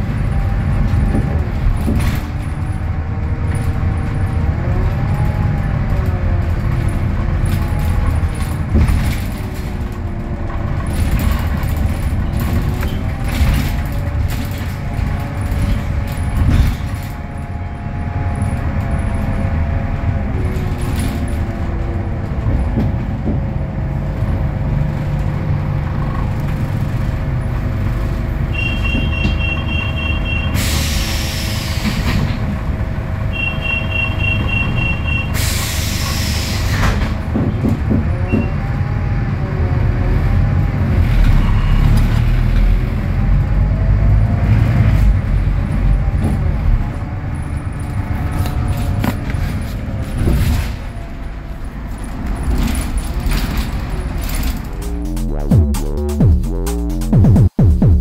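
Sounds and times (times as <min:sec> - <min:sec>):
bus diesel engine running: 0:00.0 - 0:58.0
loud hiss of released air: 0:30.6 - 0:32.1, 0:35.4 - 0:37.0
rapid high beeping: 0:54.8 - 0:58.0.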